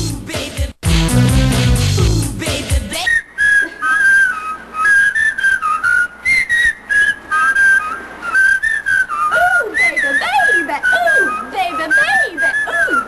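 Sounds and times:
person whistling a tune: 3.0 - 13.0.

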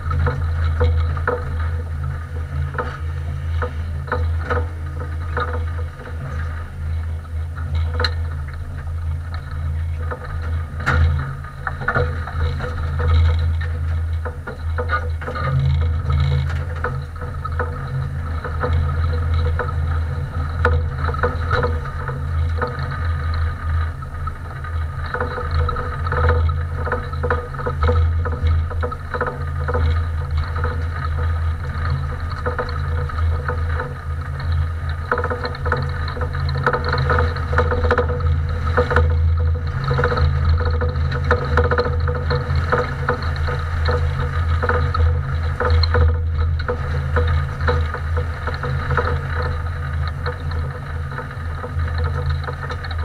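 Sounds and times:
race car engine rumble: 0.0 - 53.0.

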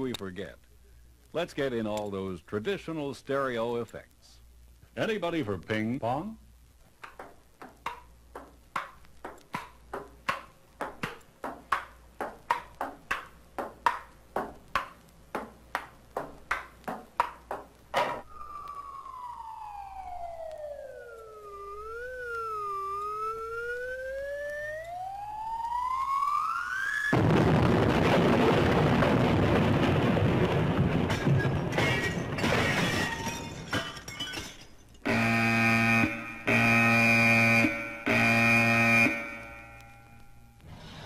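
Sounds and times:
ping-pong ball clicking: 7.0 - 17.7
whistling tone gliding in pitch: 18.2 - 27.1.

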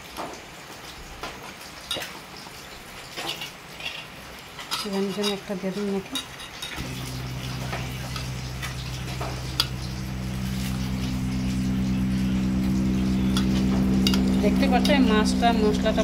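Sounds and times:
steady low hum: 6.8 - 16.0.

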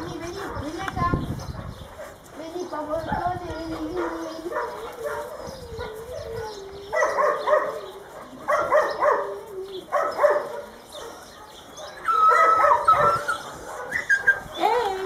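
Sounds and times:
dogs yelping: 3.0 - 15.0
dogs whining: 3.2 - 15.0.

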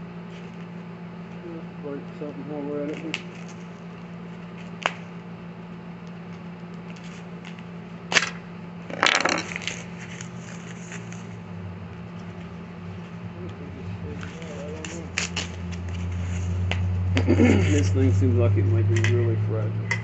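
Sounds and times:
steady low hum: 0.0 - 20.0
foam packing wrap crinkling: 14.1 - 16.8.

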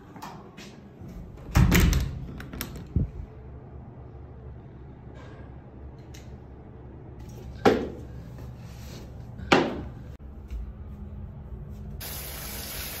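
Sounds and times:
shower running: 12.0 - 13.0.

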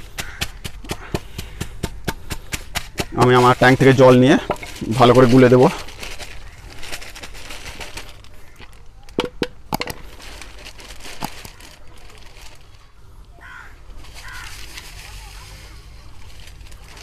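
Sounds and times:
plastic bag handling: 3.1 - 17.0
plastic bowls clacking and tapping: 8.6 - 10.0.

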